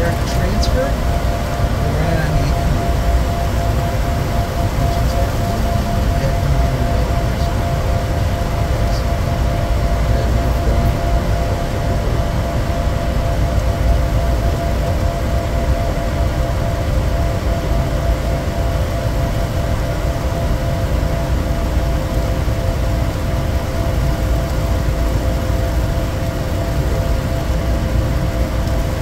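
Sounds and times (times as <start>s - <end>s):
steady mid-pitched tones: 0.0s - 15.1s
jet cabin rumble: 0.0s - 29.0s.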